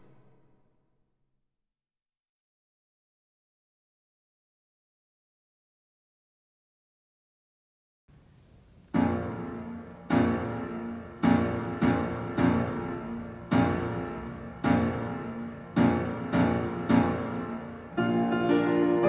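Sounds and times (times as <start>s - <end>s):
piano chords ringing: 0.0s - 0.4s, 8.9s - 19.0s.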